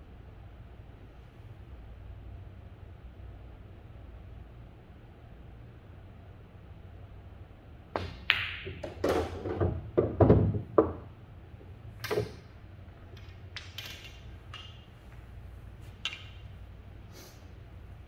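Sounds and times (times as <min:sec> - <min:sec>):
ball dropping into pocket: 0:08.0 - 0:11.1, 0:12.0 - 0:15.0, 0:15.9 - 0:16.6
balls knocking on cushions: 0:08.0 - 0:11.1
cue tip clicking on ball: 0:08.0 - 0:11.1, 0:13.1 - 0:15.0, 0:15.9 - 0:16.6
pool balls clicking: 0:08.0 - 0:17.0.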